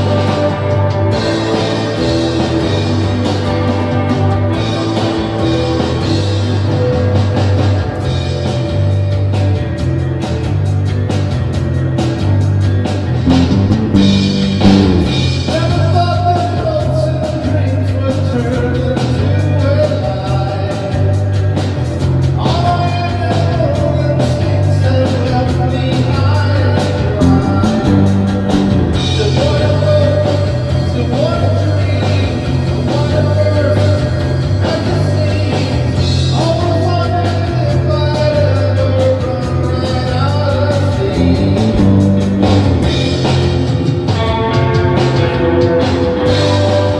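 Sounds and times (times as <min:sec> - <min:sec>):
rock band playing: 0:00.0 - 0:07.1, 0:13.3 - 0:15.9, 0:27.0 - 0:30.8, 0:40.8 - 0:46.9
person singing: 0:13.3 - 0:15.3, 0:27.2 - 0:29.7, 0:41.2 - 0:42.7
reverb-drenched electric guitar: 0:13.3 - 0:16.8, 0:26.9 - 0:31.2, 0:36.8 - 0:46.9.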